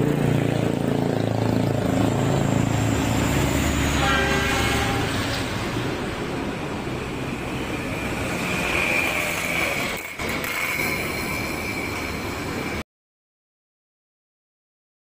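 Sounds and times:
truck engine driving past: 0:00.0 - 0:10.0
truck horn blast: 0:03.6 - 0:05.5.

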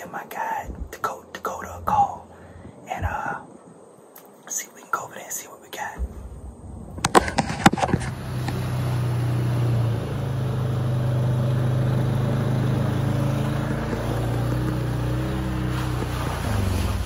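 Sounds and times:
utility vehicle engine running: 0:06.9 - 0:17.0.

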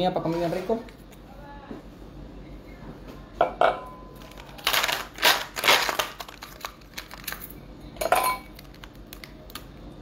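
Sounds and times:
ice cubes cracking from tray: 0:04.2 - 0:07.5, 0:08.5 - 0:09.6.

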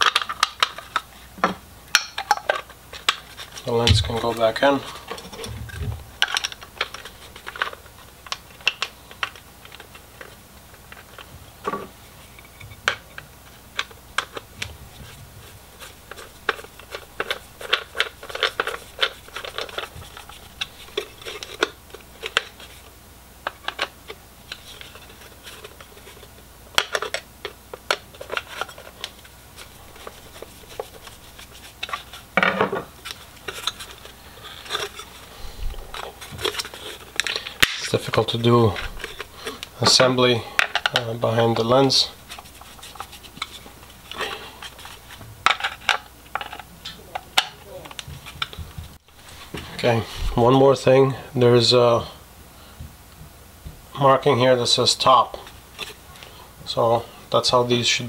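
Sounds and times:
plastic scraping: 0:02.5 - 0:13.0, 0:13.8 - 0:22.8, 0:23.5 - 0:40.0.

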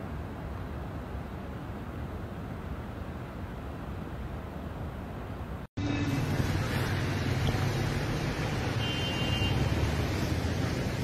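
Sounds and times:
rushing floodwater: 0:00.0 - 0:11.0
cars driving through water: 0:05.8 - 0:11.0.

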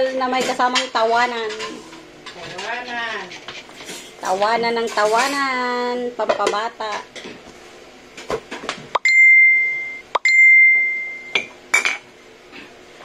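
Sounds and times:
bright bell dings: 0:09.0 - 0:11.4.

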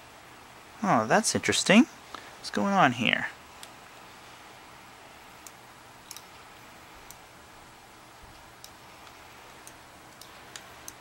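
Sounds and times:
low steady hum: 0:00.0 - 0:11.0
faint light ticks: 0:05.4 - 0:06.3, 0:07.0 - 0:07.2, 0:08.3 - 0:11.0.

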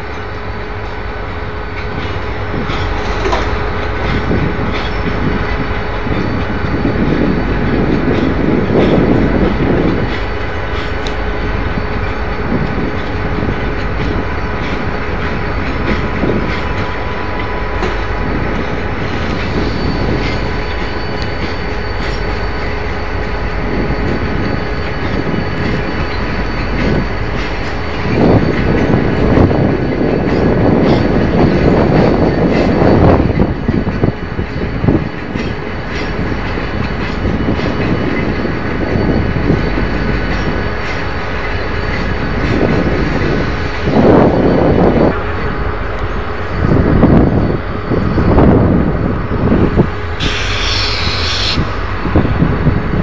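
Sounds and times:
train wheels rolling over tracks: 0:00.0 - 0:53.0
faint high wheel squeal: 0:19.1 - 0:28.9, 0:50.2 - 0:52.4.

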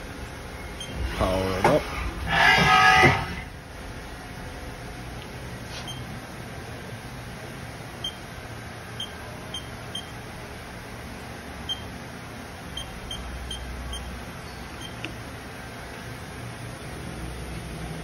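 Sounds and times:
steady low hum: 0:00.0 - 0:18.0
short high electronic beeps: 0:12.8 - 0:14.1.

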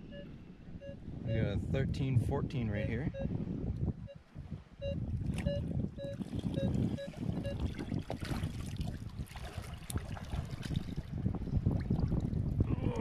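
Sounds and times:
metal detector short beeps: 0:00.0 - 0:01.5, 0:03.1 - 0:03.4, 0:04.8 - 0:07.6
water sloshing and splashing: 0:05.2 - 0:12.6.

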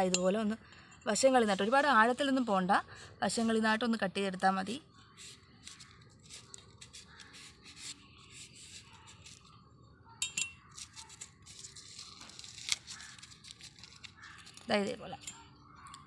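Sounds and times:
knife scraping onion skin: 0:05.1 - 0:09.6, 0:10.6 - 0:14.7.

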